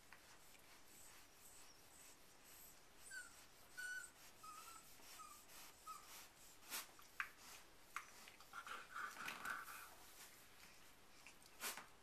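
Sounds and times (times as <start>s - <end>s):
puppies squeaking: 2.6s - 6.1s.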